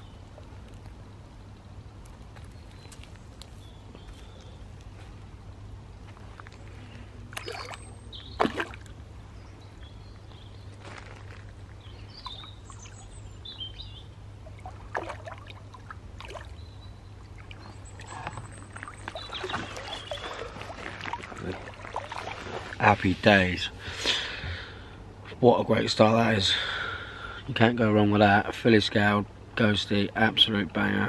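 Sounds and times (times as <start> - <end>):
water splashing: 7.3 - 9.0, 14.4 - 23.4
bird chirps: 11.8 - 14.7, 16.4 - 20.8.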